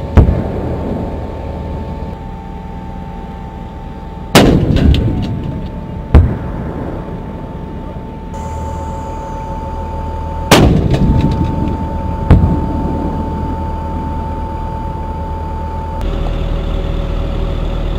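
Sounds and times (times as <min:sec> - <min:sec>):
cannon firing: 0:00.0 - 0:01.2, 0:04.3 - 0:07.4, 0:10.5 - 0:13.2.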